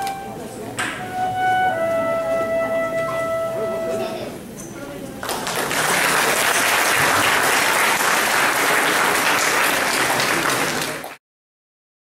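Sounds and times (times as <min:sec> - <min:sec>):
audience applauding: 0:05.2 - 0:11.2.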